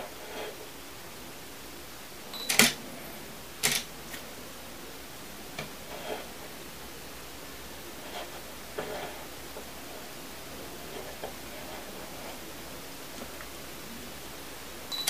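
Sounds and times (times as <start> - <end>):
camera beep: 2.3 - 2.7.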